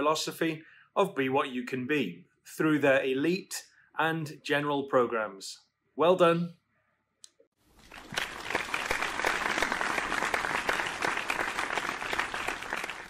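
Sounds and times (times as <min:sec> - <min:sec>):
crowd applauding: 0:07.8 - 0:13.0.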